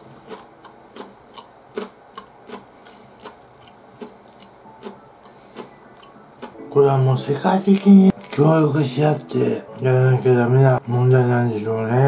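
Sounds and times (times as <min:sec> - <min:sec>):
man chewing noodles: 0:00.0 - 0:06.6.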